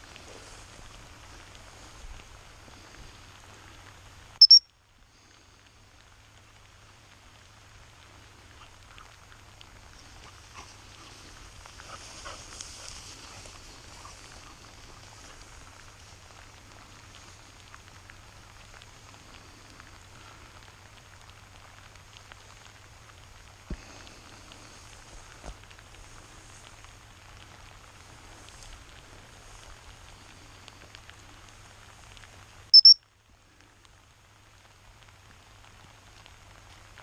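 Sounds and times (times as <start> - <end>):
rustling through wet grass: 0.0 - 37.0
steady rain: 0.0 - 37.0
high-pitched whistle blasts: 4.4 - 4.6, 32.8 - 33.0.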